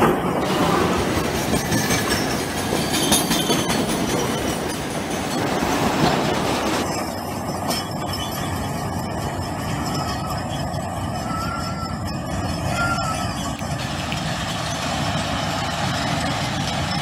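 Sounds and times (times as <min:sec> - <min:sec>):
train wheels clattering over rails: 0:00.0 - 0:17.0.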